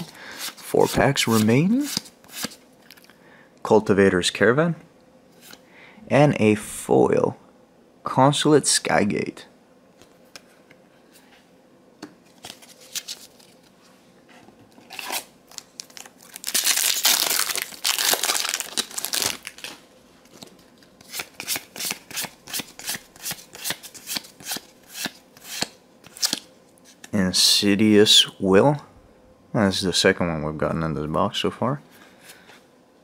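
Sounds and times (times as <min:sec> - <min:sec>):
foil wrapper tearing and crinkling: 0:14.9 - 0:19.8.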